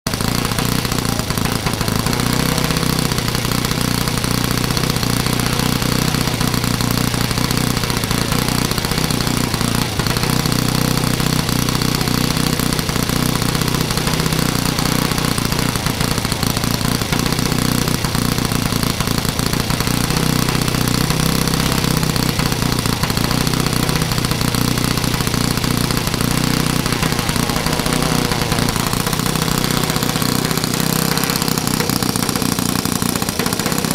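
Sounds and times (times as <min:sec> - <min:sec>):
model aircraft engine running: 0:00.1 - 0:33.9.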